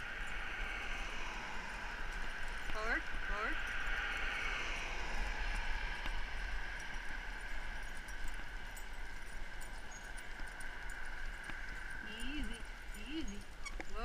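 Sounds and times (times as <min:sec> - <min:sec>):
wheels rolling on pavement: 0:00.0 - 0:14.0
wind noise: 0:00.0 - 0:14.0
faint ticks: 0:03.6 - 0:14.0.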